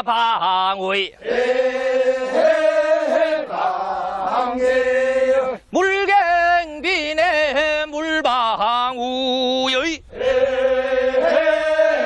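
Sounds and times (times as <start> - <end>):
men's chorus singing sustained notes: 1.2 - 8.3, 10.0 - 12.0
solo male voice singing: 4.2 - 12.0.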